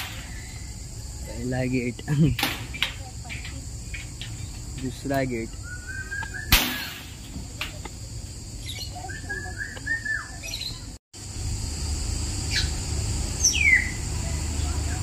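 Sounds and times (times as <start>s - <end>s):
steady hiss: 0.0s - 9.1s
birds chirping and calling: 0.0s - 11.0s, 12.5s - 15.0s.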